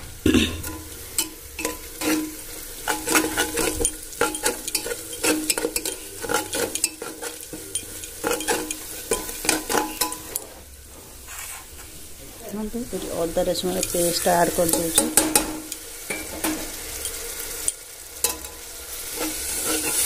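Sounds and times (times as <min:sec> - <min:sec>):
onions sizzling: 0:00.0 - 0:20.0
spoon clinking against a pot: 0:00.6 - 0:10.4, 0:13.8 - 0:18.6
steel spoon scraping a pot: 0:00.6 - 0:10.6, 0:17.0 - 0:20.0.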